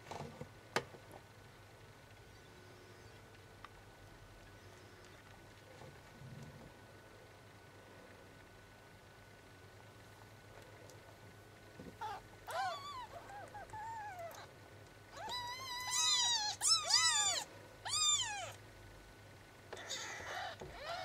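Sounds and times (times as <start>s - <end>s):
kittens mewing: 11.9s - 18.6s, 19.7s - 21.0s.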